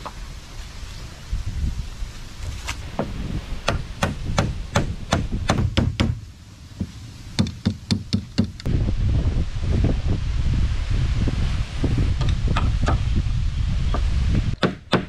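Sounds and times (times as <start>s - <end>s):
hammer blows on wooden frame: 2.9s - 6.2s, 13.9s - 15.0s.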